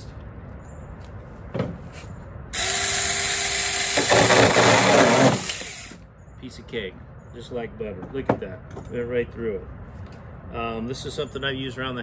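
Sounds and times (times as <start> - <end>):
electric chainsaw cutting wood: 2.6 - 6.0.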